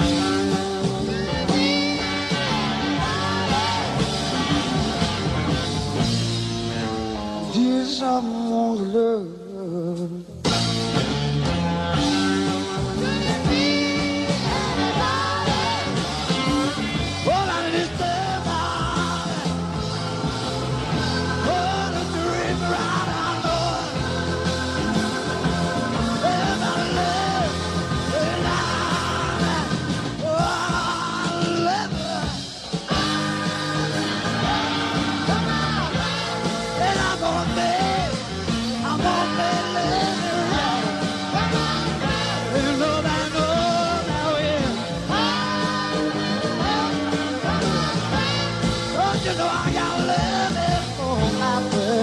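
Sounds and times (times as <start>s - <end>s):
rock music with sliding melody: 0.0s - 9.0s, 10.0s - 52.0s.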